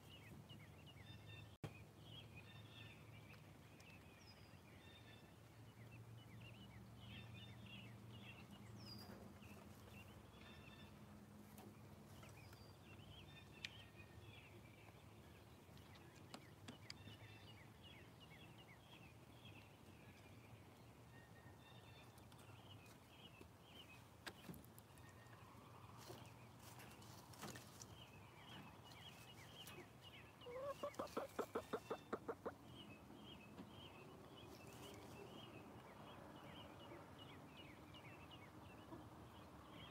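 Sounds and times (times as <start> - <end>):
hens foraging: 0.0 - 39.9
hen clucking: 30.4 - 32.6.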